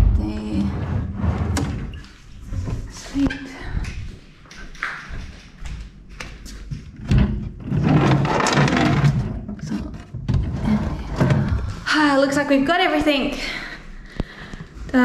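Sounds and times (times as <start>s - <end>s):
drawers sliding roughly: 0.7s - 2.0s
wooden doors and drawers knocking: 6.8s - 11.7s.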